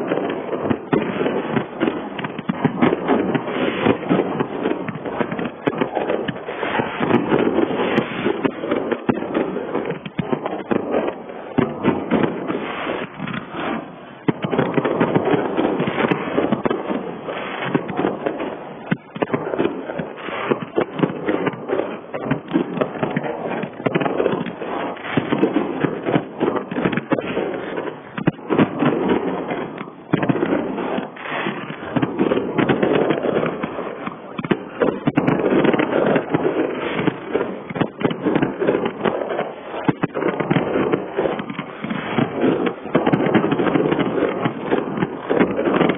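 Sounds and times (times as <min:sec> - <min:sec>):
fireworks bursting and crackling: 0:00.0 - 0:45.9.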